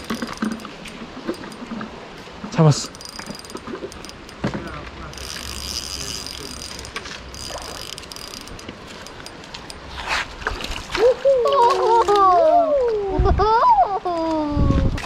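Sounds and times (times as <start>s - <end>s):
fishing reel ratcheting clicks: 0.0s - 1.6s, 2.8s - 10.0s.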